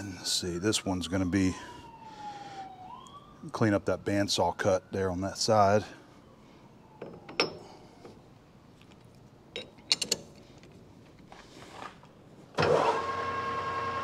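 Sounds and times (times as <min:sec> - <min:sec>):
lathe running with steady hum: 0:12.6 - 0:14.0.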